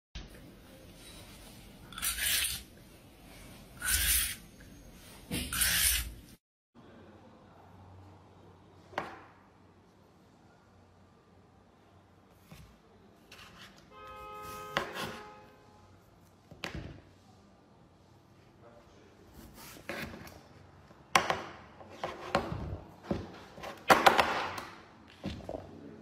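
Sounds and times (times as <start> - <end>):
peeler scraping cucumber skin: 1.9 - 2.7, 3.8 - 4.4, 5.5 - 6.2.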